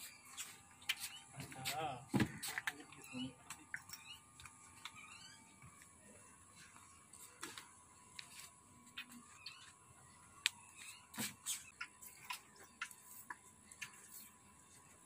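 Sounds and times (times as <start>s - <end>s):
calf suckling wet smacking: 11.3s - 14.1s.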